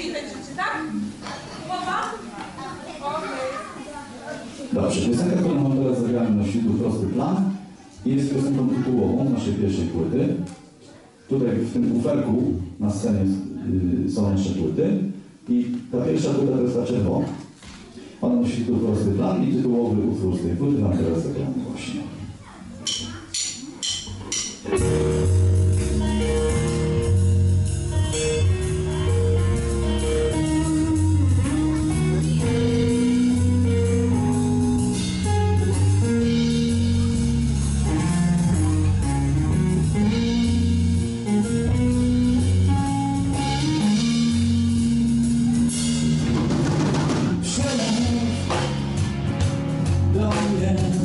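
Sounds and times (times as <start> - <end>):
drum kit: 22.8 - 51.0
blues band playing: 24.1 - 51.0
electric guitar: 24.1 - 51.0
electric bass: 24.2 - 51.0.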